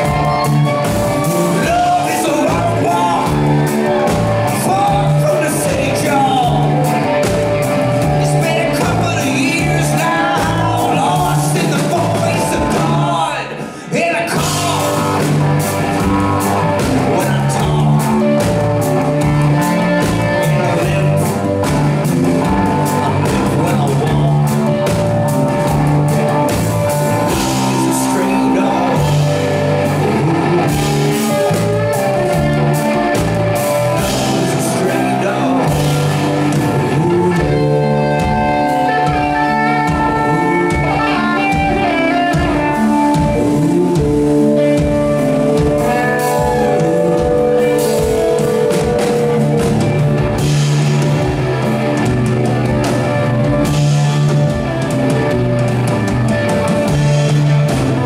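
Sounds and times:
rock band playing: 0:00.0 - 0:58.0
drum strokes: 0:14.4 - 0:58.0.

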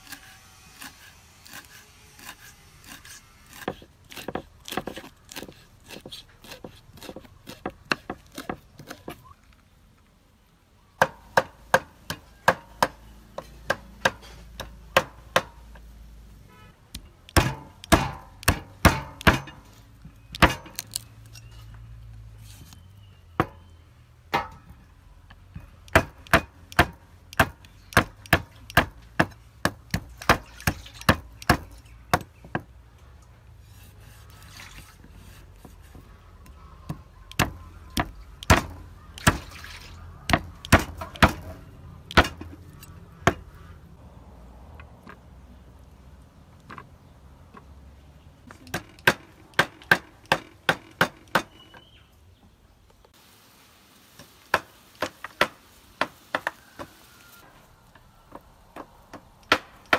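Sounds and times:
cleaver chopping on wooden block: 0:03.5 - 0:09.2, 0:17.3 - 0:19.6, 0:20.4 - 0:21.0, 0:25.9 - 0:32.7, 0:36.9 - 0:39.6, 0:40.3 - 0:42.5, 0:48.7 - 0:51.6, 0:58.8 - 0:59.9.

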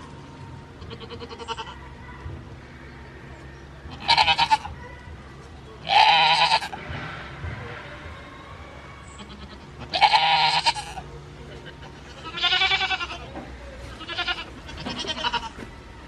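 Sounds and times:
goat bleating: 0:00.8 - 0:01.8, 0:03.9 - 0:04.8, 0:05.8 - 0:06.8, 0:09.2 - 0:15.6.

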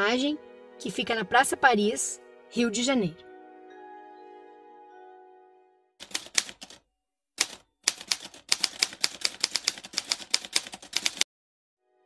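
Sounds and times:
typewriter keys clacking: 0:06.0 - 0:06.8, 0:07.4 - 0:11.2.

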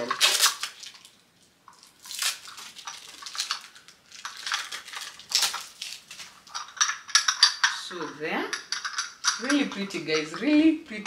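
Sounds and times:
rustling: 0:00.0 - 0:11.0
ceramic bowls clinking: 0:06.4 - 0:11.0.

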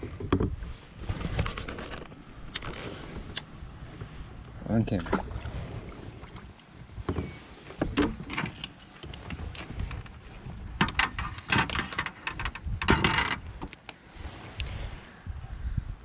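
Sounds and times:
rod and paddle knocking on kayak: 0:07.0 - 0:13.7.

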